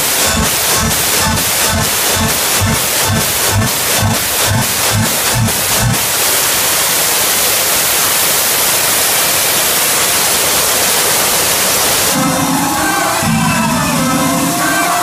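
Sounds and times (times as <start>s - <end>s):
dance music beat: 0.0s - 6.2s
loud steady hiss: 0.0s - 15.0s.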